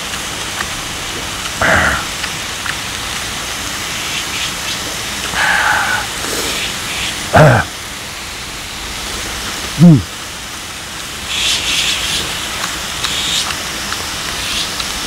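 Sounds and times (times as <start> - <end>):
fat spitting and popping: 0.6 - 2.8
man humming: 1.6 - 2.2, 5.3 - 6.5, 7.3 - 7.7, 9.8 - 10.1.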